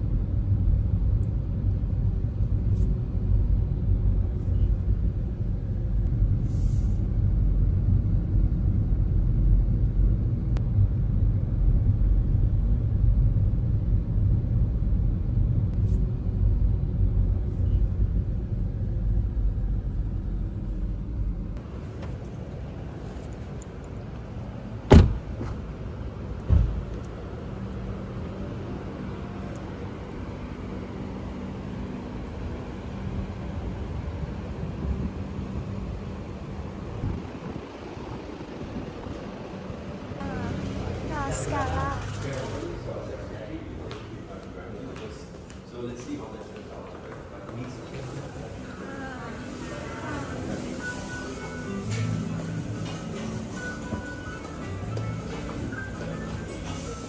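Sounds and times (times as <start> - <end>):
car rumble: 0.0 - 43.7
outdoor background: 0.0 - 45.6.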